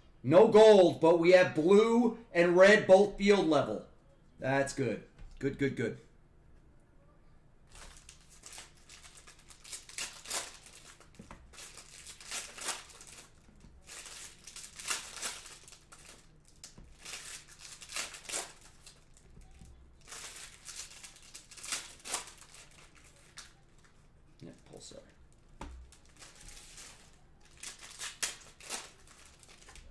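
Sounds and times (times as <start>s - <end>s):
foil wrappers torn and crumpled: 7.7s - 23.6s, 25.8s - 29.9s.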